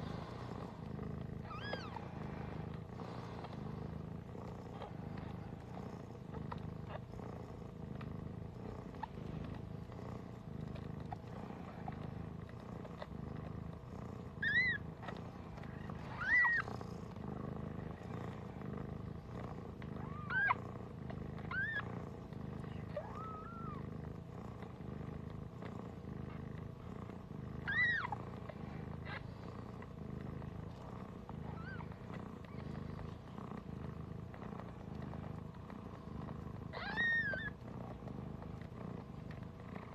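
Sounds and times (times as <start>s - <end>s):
cat purring: 0.0s - 39.9s
kittens mewing: 14.4s - 16.7s, 27.6s - 28.2s, 36.7s - 37.6s.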